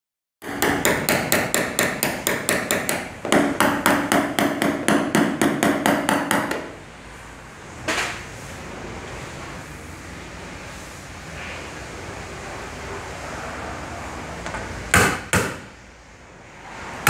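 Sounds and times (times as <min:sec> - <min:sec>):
hammer tapping metal punch: 0:00.4 - 0:06.7, 0:14.9 - 0:15.7.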